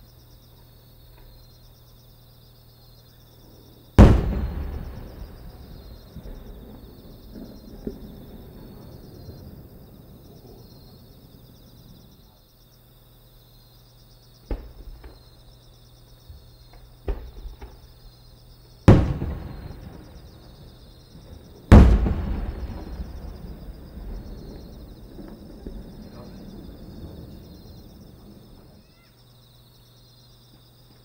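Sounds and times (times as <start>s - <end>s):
fireworks booms with echo: 3.9s - 12.1s, 14.4s - 15.4s, 16.3s - 18.1s, 18.8s - 28.9s
fireworks thumps: 4.0s - 9.6s, 14.5s - 15.3s, 16.3s - 18.0s, 18.9s - 28.8s.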